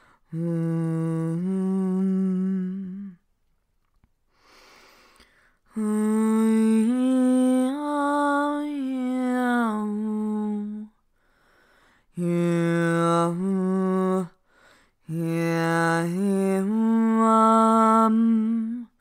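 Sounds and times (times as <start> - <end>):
breath: 0.0 - 0.3, 4.3 - 5.7, 11.1 - 12.1, 14.4 - 15.0
person humming long notes: 0.3 - 3.2, 5.8 - 10.9, 12.2 - 14.4, 15.1 - 18.9.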